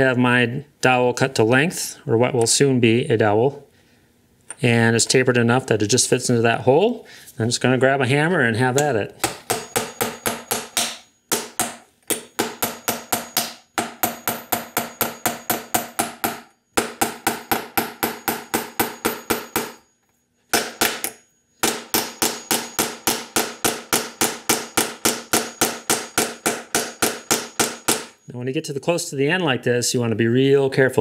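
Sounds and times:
hammer striking wood through metal: 0:09.2 - 0:19.9, 0:20.5 - 0:28.2.

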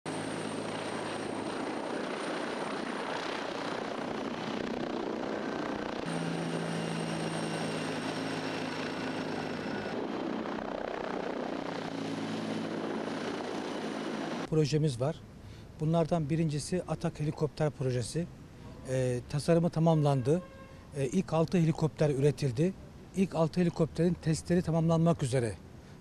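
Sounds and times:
helicopter engine and rotor drone: 0:00.1 - 0:14.5.

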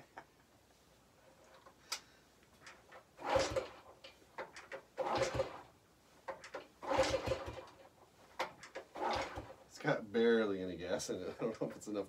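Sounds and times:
motorcycle engine kick-start clatter: 0:02.6 - 0:05.7, 0:06.3 - 0:09.7.

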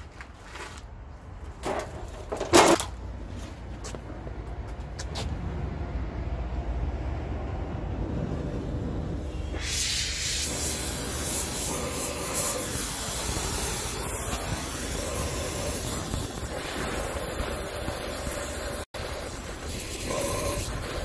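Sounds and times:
gas torch flame hissing: 0:08.2 - 0:21.0.

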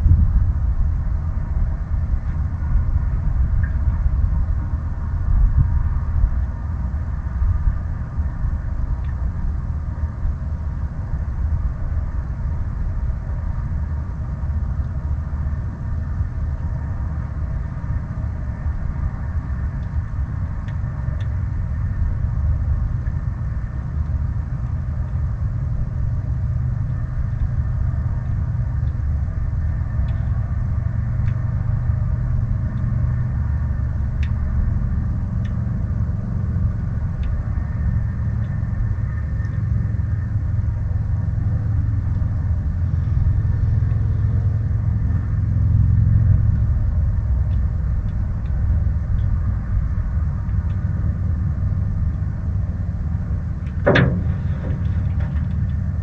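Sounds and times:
wind buffeting microphone: 0:00.0 - 0:56.0
faint ticks: 0:09.0 - 0:09.2, 0:26.8 - 0:35.7, 0:36.7 - 0:40.4, 0:46.2 - 0:49.7
water lapping against canoe hull: 0:53.8 - 0:55.7.

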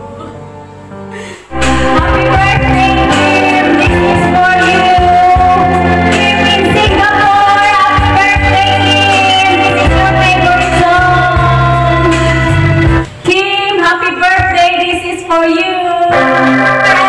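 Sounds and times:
backing music: 0:00.0 - 0:13.3, 0:16.1 - 0:17.0
woman singing into a microphone: 0:01.5 - 0:12.5, 0:13.3 - 0:17.0.

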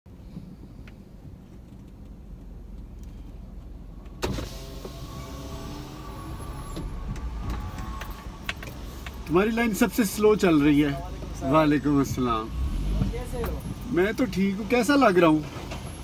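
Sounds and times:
car cabin rumble: 0:00.1 - 0:14.2
outside traffic noise: 0:00.1 - 0:16.0
power window motor whine: 0:04.2 - 0:08.7.

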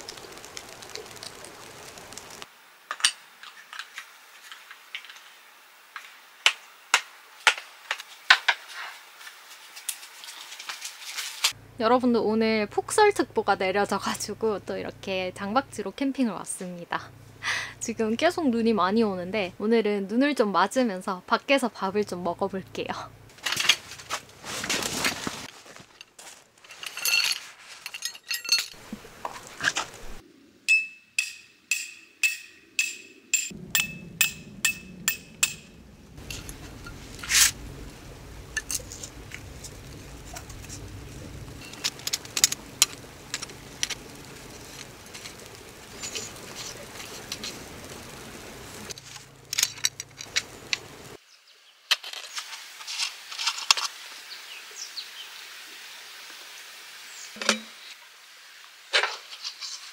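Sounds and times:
ringing metallic strikes: 0:30.7 - 0:37.0.

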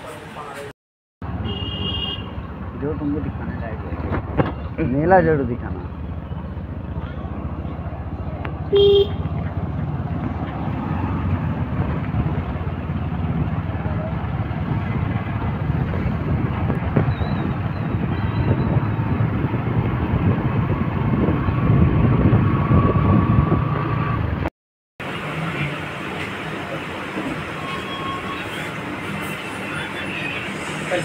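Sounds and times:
wind noise on microphone: 0:14.5 - 0:24.5.

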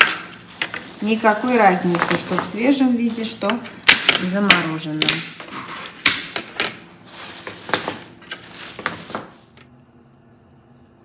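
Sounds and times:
frozen dumplings clicking on plastic tray: 0:00.0 - 0:05.4
plastic bag rustling: 0:00.0 - 0:09.7.

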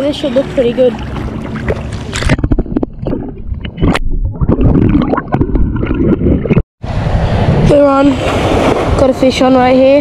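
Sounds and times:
shallow water sloshing and splashing: 0:00.0 - 0:06.6.

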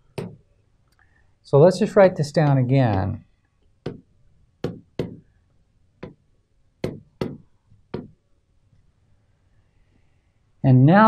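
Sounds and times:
stylus tapping on touchscreen: 0:00.1 - 0:00.4, 0:02.8 - 0:03.2, 0:03.8 - 0:05.3, 0:06.0 - 0:06.2, 0:06.8 - 0:08.2.

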